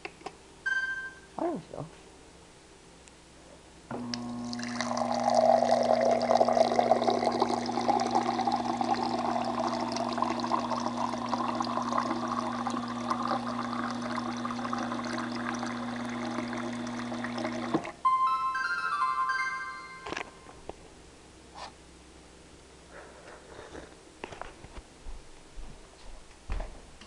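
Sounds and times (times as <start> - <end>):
refrigerator hum: 3.4 - 18.0
water pouring into a glass: 4.2 - 17.9.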